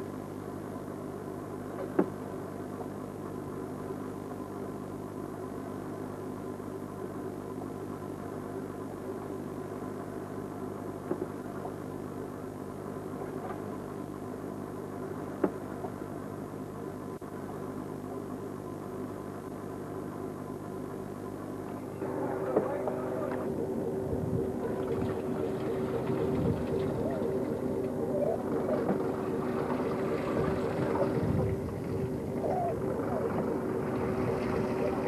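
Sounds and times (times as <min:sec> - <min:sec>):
diesel boat engine drone: 0:00.0 - 0:35.0.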